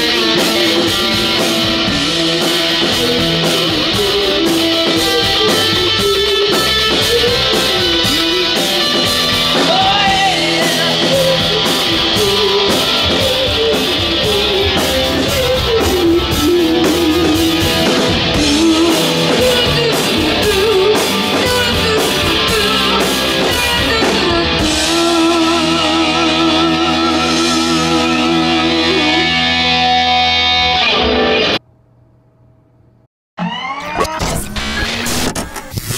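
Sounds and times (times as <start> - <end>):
drums with cymbal strokes: 0.0 - 28.4
bass guitar: 0.0 - 31.6
electric guitar lead: 0.0 - 31.6.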